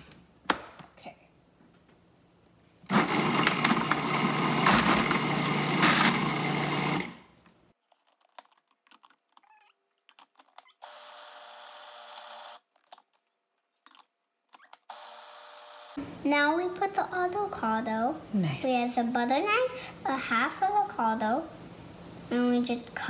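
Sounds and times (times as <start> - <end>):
food processor motor running: 2.9 - 7.2, 10.8 - 12.6.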